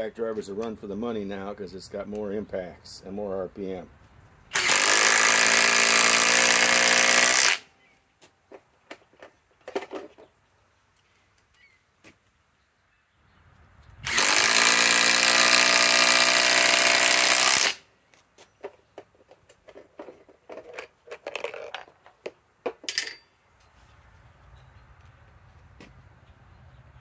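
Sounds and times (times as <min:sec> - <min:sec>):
impact driver driving screw into wood: 0:04.5 - 0:07.7, 0:14.0 - 0:17.8.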